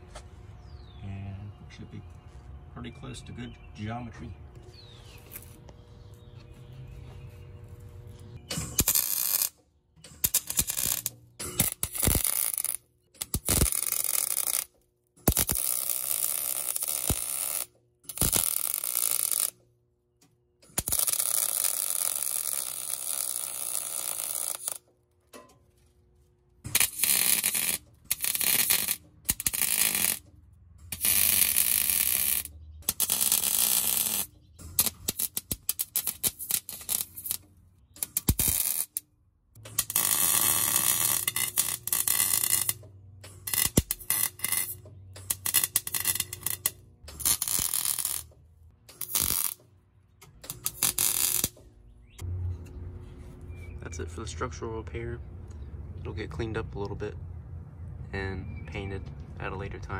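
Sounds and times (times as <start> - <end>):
welding arc crackling: 8.4 - 19.6, 20.6 - 24.9, 26.6 - 30.3, 30.9 - 39.0, 39.6 - 51.6.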